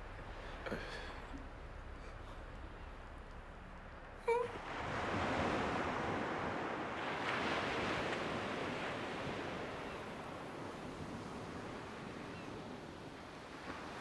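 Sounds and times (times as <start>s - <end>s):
waves washing onto shingle: 4.6s - 14.0s.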